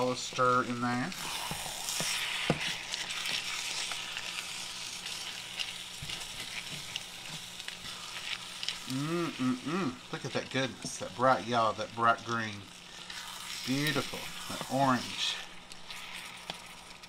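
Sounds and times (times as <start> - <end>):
wooden spatula scraping pan: 0.0 - 4.3, 6.0 - 8.4, 13.1 - 16.7
food sizzling in skillet: 0.0 - 17.0.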